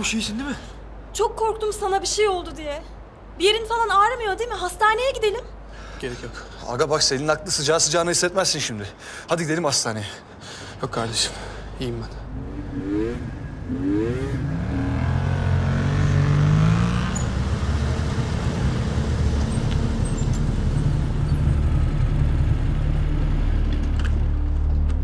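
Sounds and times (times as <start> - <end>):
motorcycle engines revving and idling: 12.0 - 25.0.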